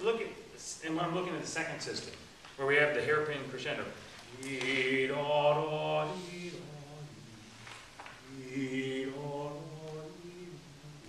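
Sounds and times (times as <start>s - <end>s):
man singing wordlessly: 2.6s - 11.0s.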